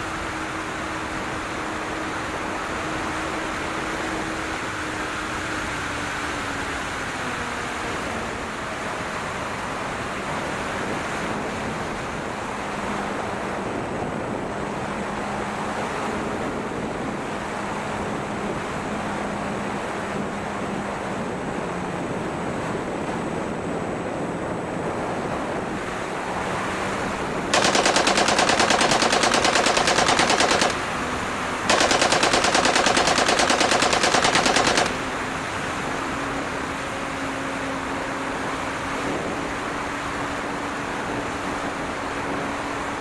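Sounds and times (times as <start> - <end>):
electric motor and propeller humming: 25.9 - 36.3
simulated machine-gun fire: 27.5 - 35.2.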